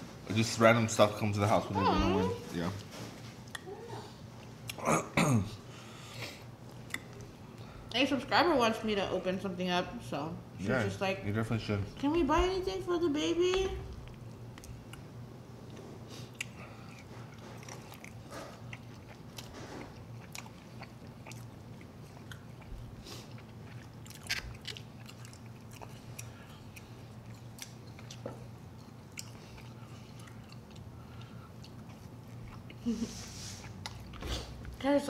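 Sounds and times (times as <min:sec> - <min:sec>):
people chewing food: 0:05.7 - 0:08.0, 0:13.7 - 0:34.8.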